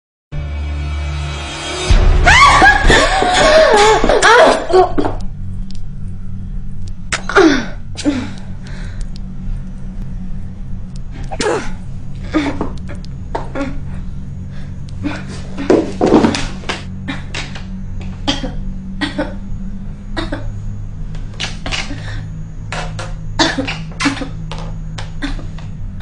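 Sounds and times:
low steady hum: 0:01.9 - 0:26.0
woman crying out: 0:02.2 - 0:04.7
woman screaming: 0:02.2 - 0:04.7.

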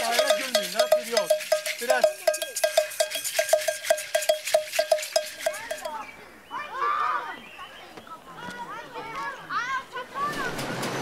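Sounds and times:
percussion ringing clinks: 0:00.0 - 0:06.1
children laughing and talking: 0:06.1 - 0:10.6.

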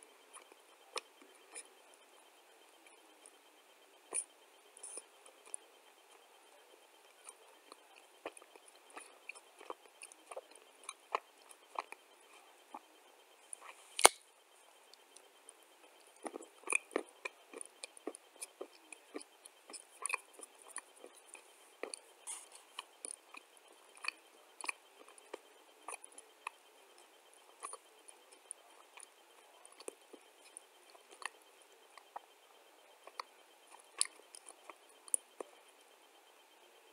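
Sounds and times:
dry clay being chewed: 0:00.0 - 0:36.9.

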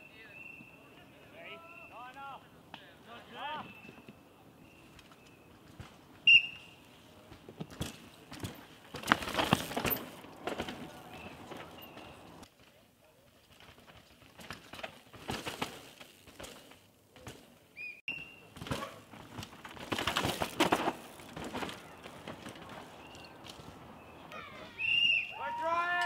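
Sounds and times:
mountain bikes rattling over roots: 0:04.7 - 0:26.0.

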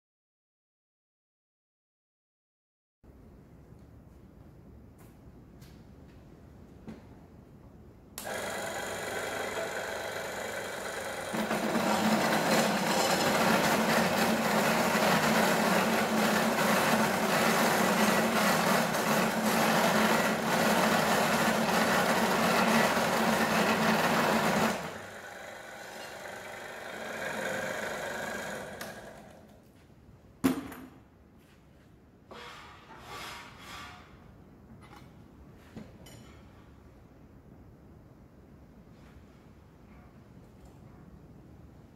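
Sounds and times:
cold saw cutting steel: 0:08.2 - 0:29.5.

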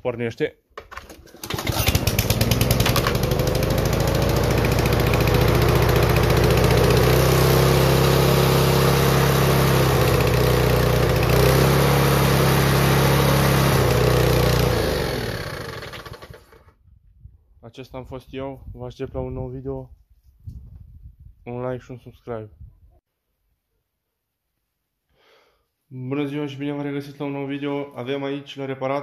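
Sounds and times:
lawn mower engine running: 0:00.9 - 0:16.7.

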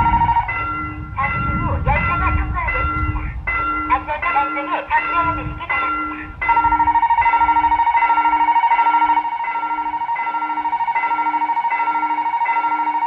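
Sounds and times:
crossing bell electronic ding: 0:00.0 - 0:13.0.

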